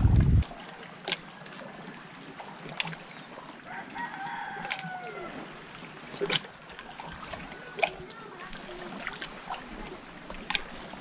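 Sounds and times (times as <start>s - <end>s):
rooster crowing: 3.7s - 5.5s.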